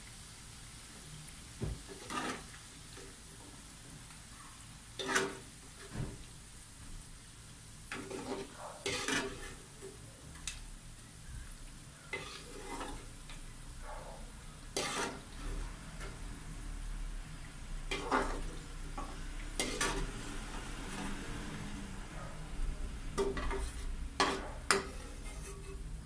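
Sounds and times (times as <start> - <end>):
hot oil sizzling: 0.0 - 26.0
metal utensils scraping a wok: 1.9 - 2.6, 5.0 - 6.0, 7.9 - 10.6, 12.0 - 13.5, 14.6 - 16.5, 17.8 - 21.7, 22.4 - 26.0.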